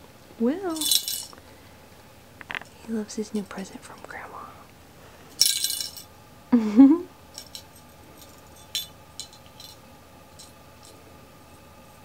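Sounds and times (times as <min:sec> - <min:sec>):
small jingle bell tinkling: 0:00.7 - 0:01.4, 0:05.3 - 0:06.1, 0:07.3 - 0:11.0.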